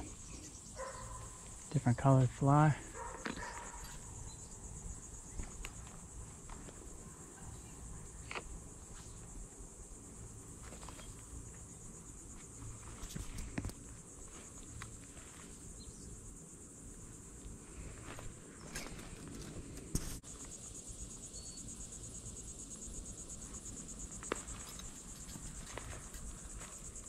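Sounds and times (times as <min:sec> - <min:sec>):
insects chirring: 0:00.0 - 0:27.0.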